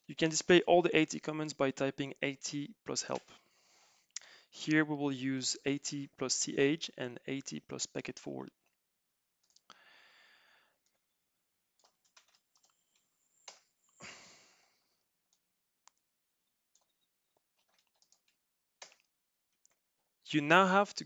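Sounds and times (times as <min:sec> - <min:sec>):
soft breaths: 0:03.2 - 0:04.6, 0:09.7 - 0:10.9, 0:13.8 - 0:15.1
faint keyboard typing: 0:09.4 - 0:09.8, 0:11.8 - 0:13.7, 0:16.7 - 0:19.9.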